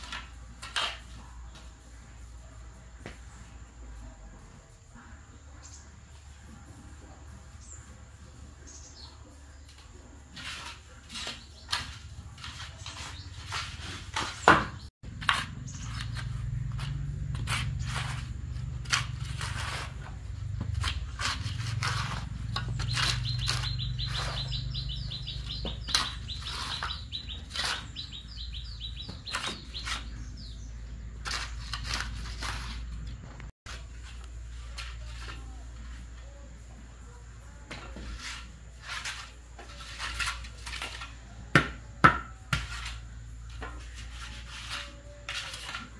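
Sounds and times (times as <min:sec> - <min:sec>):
bird chirping rapidly: 0:22.4 - 0:32.8.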